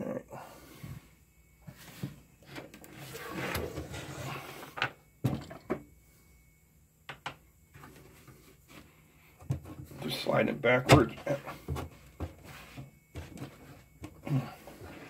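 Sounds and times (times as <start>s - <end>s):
cabinet scraping on wood: 2.8s - 4.8s.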